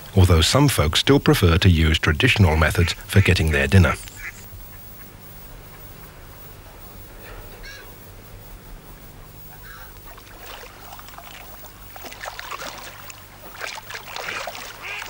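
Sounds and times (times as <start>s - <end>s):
ducks quacking: 0.0s - 15.0s.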